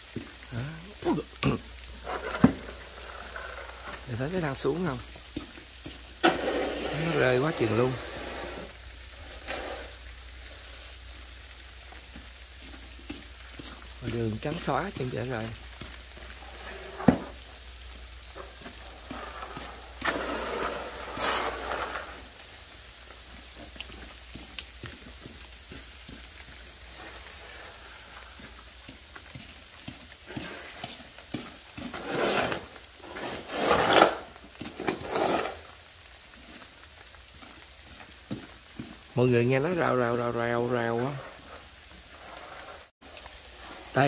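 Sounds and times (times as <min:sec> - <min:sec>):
ice pellets pattering: 0:00.0 - 0:44.0
snow shovels scraping ice: 0:00.5 - 0:11.0, 0:12.6 - 0:17.6, 0:18.3 - 0:22.5, 0:26.6 - 0:28.5, 0:30.2 - 0:35.8, 0:38.7 - 0:42.9.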